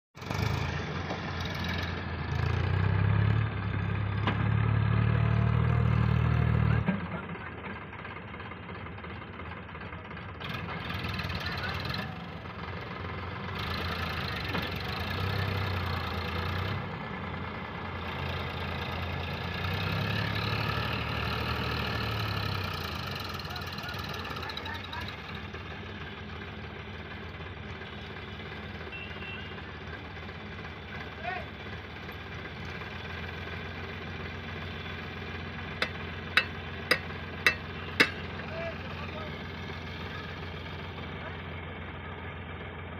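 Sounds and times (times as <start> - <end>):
tractor diesel engine under load: 0.2 - 42.9
sharp knocks: 35.8 - 38.3.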